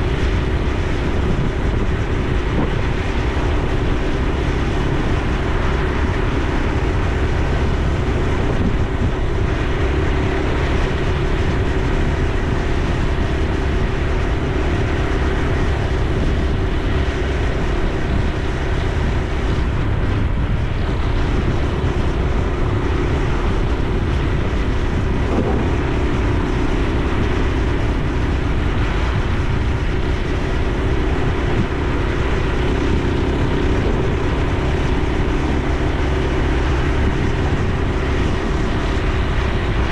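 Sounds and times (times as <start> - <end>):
motorcycle engine droning: 0.0 - 39.9.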